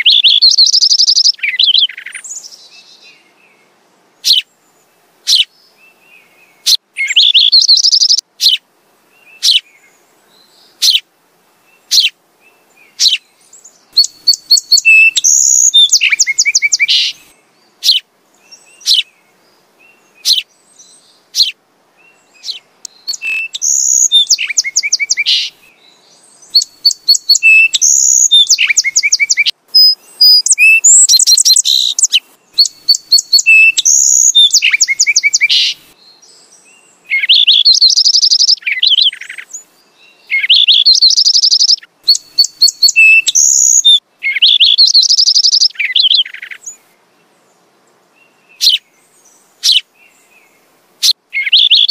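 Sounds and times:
sparrow chirping: 0:00.0 - 0:02.9, 0:04.2 - 0:04.5, 0:05.3 - 0:05.5, 0:06.6 - 0:08.6, 0:09.4 - 0:09.6, 0:10.8 - 0:11.0, 0:11.9 - 0:12.1, 0:12.9 - 0:13.2, 0:13.9 - 0:19.1, 0:20.2 - 0:21.6, 0:22.3 - 0:25.6, 0:26.4 - 0:35.9, 0:37.1 - 0:39.6, 0:40.3 - 0:46.8, 0:48.6 - 0:48.8, 0:49.6 - 0:49.8, 0:51.4 - 0:51.9.

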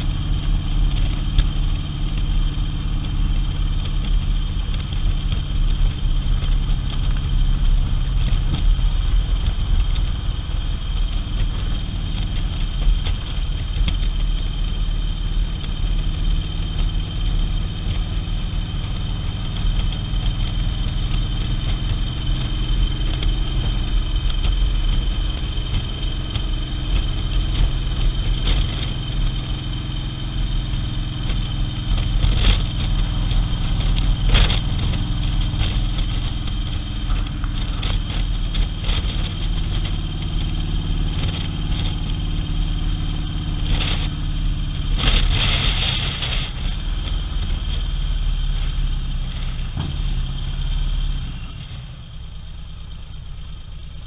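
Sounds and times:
motorcycle engine running: 0:00.0 - 0:54.0
wind noise: 0:17.6 - 0:50.0.

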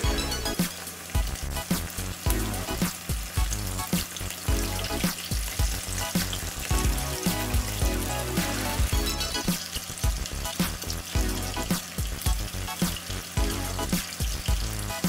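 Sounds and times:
chicken sizzling in hot oil: 0:00.0 - 0:15.0
music with steady beat: 0:00.0 - 0:15.0.

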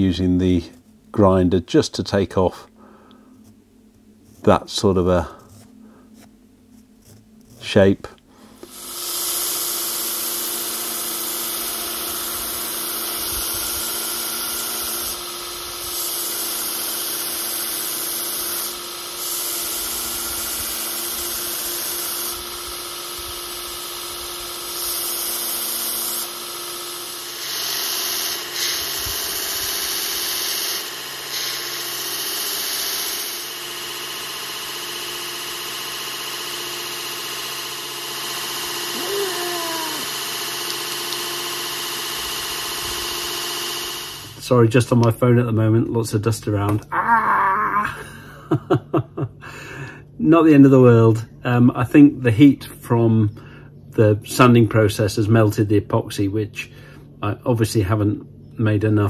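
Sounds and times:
belt grinder motor humming: 0:08.6 - 0:44.5
grinding hiss on abrasive belt: 0:08.6 - 0:44.6.

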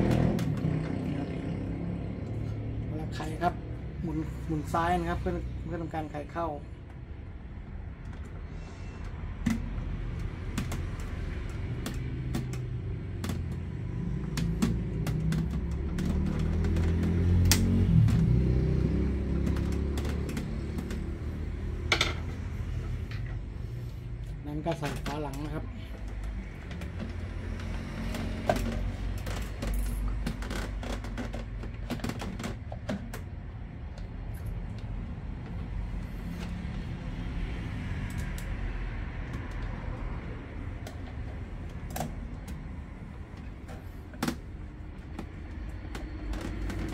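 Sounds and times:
plastic clicks and knocks: 0:09.4 - 0:22.5, 0:24.6 - 0:34.1, 0:40.7 - 0:46.9.

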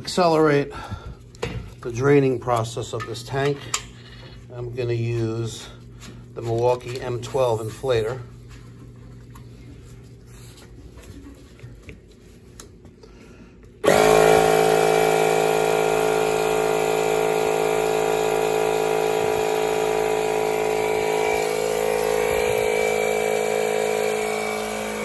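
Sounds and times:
air compressor running: 0:12.9 - 0:25.0.

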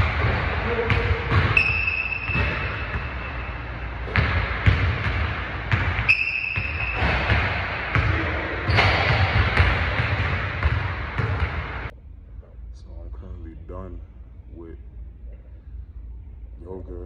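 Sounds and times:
basketballs bouncing on hardwood: 0:00.0 - 0:03.3, 0:04.0 - 0:11.9
short high shoe squeaks: 0:01.6 - 0:02.9, 0:06.1 - 0:07.1.

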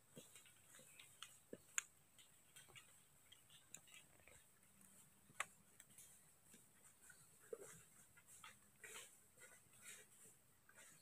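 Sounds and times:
faint ticks: 0:00.2 - 0:06.7.

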